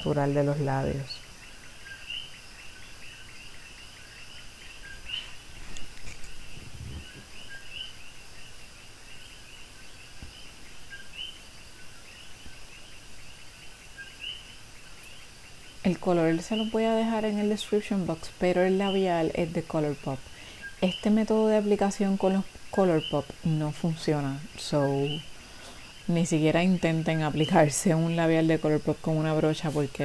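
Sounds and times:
soft low bump: 0:06.4 - 0:07.4.

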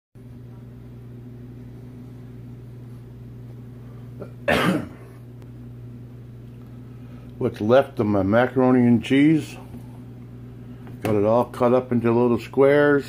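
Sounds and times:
steady low hum: 0:00.2 - 0:13.0
person coughing: 0:04.2 - 0:05.2.

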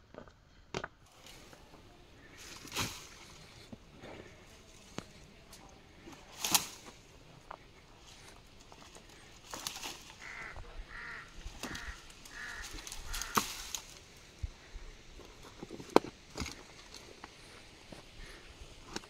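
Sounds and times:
footsteps crunching on twigs: 0:01.0 - 0:19.0
twig snapping: 0:06.3 - 0:07.0, 0:09.5 - 0:14.0
bird calling: 0:08.9 - 0:14.0.

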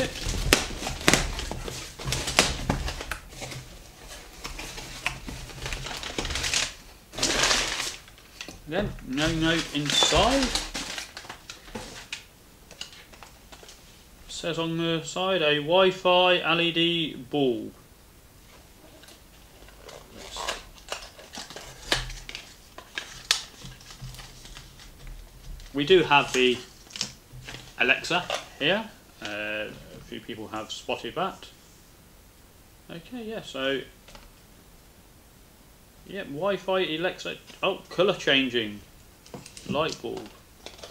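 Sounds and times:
cardboard rustling: 0:00.0 - 0:13.8, 0:18.5 - 0:30.2, 0:39.3 - 0:40.9.

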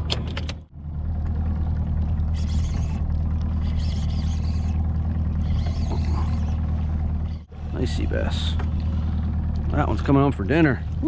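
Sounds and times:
outboard engine idling: 0:00.0 - 0:11.0
fishing reel whirring: 0:02.3 - 0:07.5.

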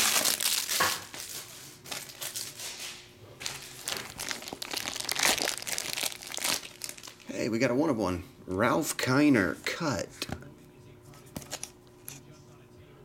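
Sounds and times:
plastic wrapper rustling: 0:00.0 - 0:07.4.

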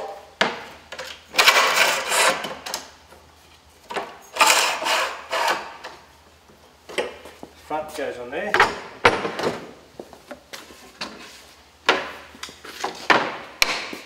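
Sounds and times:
metal legs scraping on bench top: 0:01.3 - 0:02.6.

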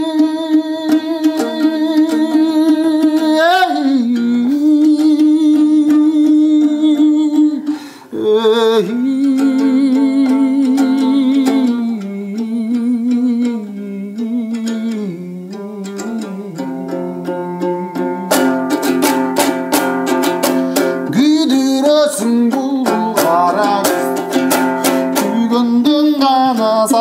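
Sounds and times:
lute strummed: 0:00.0 - 0:27.0
man singing folk song: 0:00.0 - 0:27.0.

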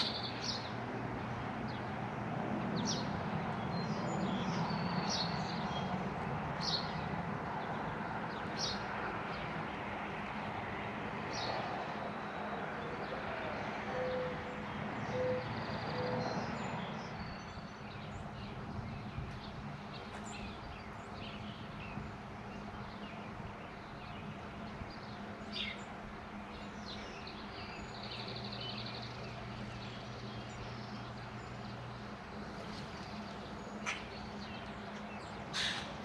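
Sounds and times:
small birds chirping: 0:00.0 - 0:00.8, 0:14.1 - 0:36.0.

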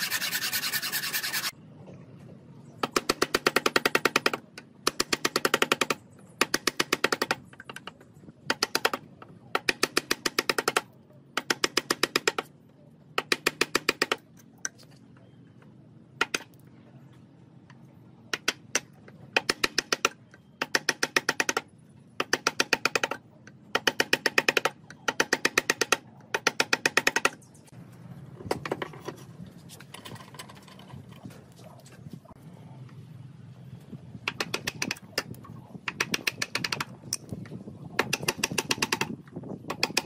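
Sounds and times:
wood rubbing: 0:00.0 - 0:01.5.

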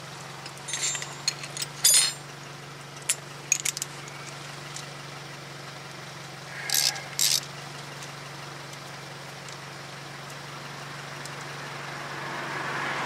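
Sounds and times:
metal hand tools clinking: 0:00.4 - 0:02.3, 0:03.0 - 0:04.9, 0:06.7 - 0:07.5.

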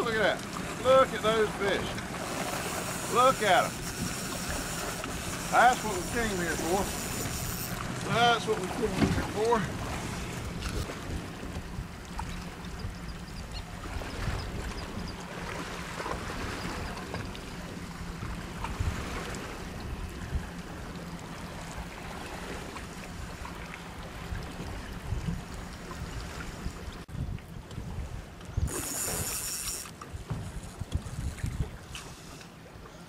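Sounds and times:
boat engine idling: 0:00.0 - 0:27.0
choppy sea water washing: 0:00.0 - 0:33.0
wind on microphone: 0:08.9 - 0:17.4, 0:24.1 - 0:32.0.

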